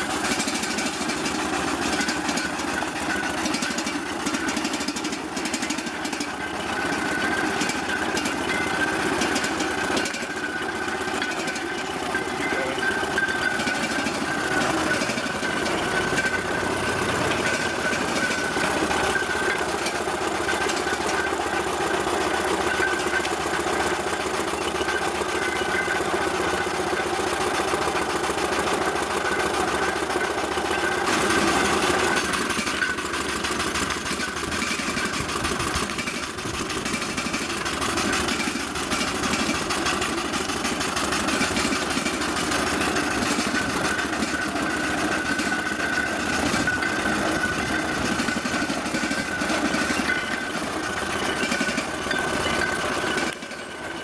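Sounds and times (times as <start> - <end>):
thin high tone: 0.0 - 21.7
clatter of engine gearing: 0.0 - 54.0
steam engine running: 0.0 - 54.0.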